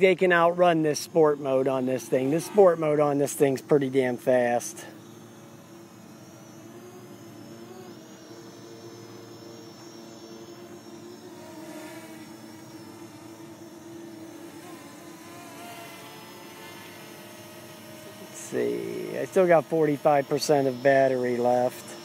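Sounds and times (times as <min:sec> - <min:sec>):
drone propellers whirring: 0:00.0 - 0:22.0.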